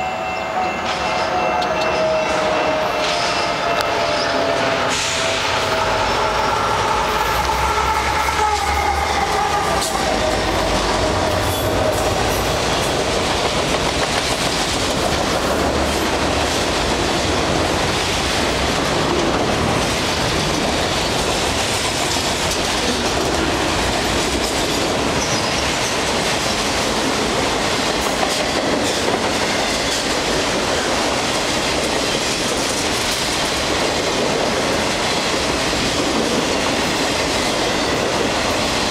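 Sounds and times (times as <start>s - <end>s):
locomotive whine: 0.0s - 27.9s
train wheels rumbling on rails: 0.0s - 38.9s.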